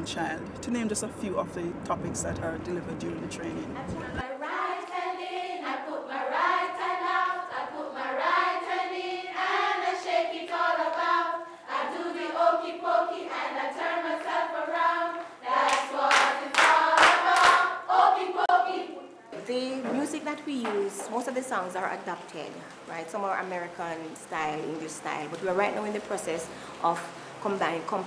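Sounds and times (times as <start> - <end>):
group singing unaccompanied: 3.8 - 19.2
hand claps: 15.6 - 17.7.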